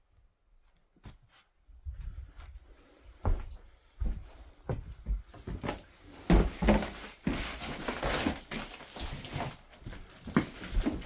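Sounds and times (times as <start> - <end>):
footsteps on wooden floor: 3.2 - 8.3.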